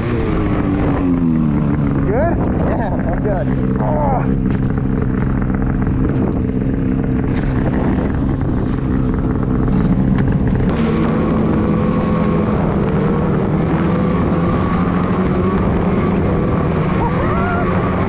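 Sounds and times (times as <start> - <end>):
snowmobile engine running: 0.0 - 18.0
wind on microphone: 4.4 - 18.0.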